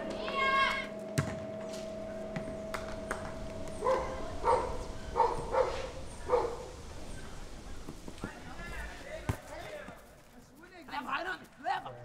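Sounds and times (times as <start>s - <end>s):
faint steady hum: 0.0s - 7.8s
dog barking: 3.8s - 6.7s.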